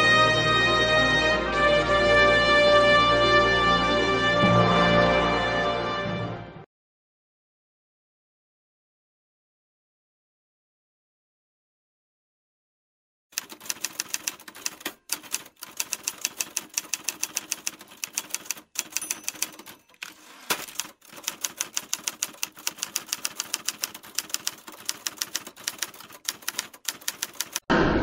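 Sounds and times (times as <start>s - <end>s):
typewriter key clicks: 13.4s - 27.6s.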